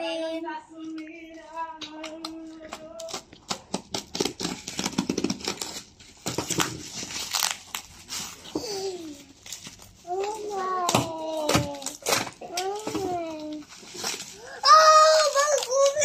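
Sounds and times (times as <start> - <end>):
bubble wrap crinkling and tearing: 2.5 - 16.0
utility knife cutting bubble wrap: 3.0 - 8.8, 10.2 - 16.0.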